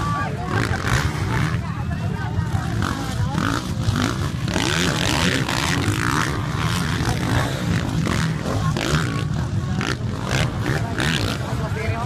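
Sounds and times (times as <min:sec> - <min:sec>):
motocross bike engines revving: 0:00.0 - 0:12.0.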